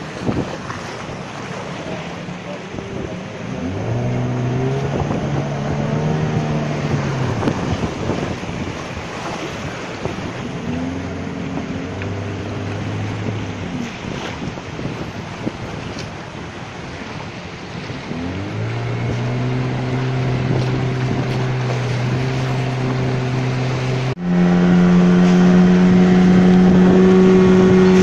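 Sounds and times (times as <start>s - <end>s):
wind on microphone: 0.0s - 2.1s, 2.7s - 28.0s
churning water: 0.0s - 28.0s
low droning tone: 18.0s - 28.0s.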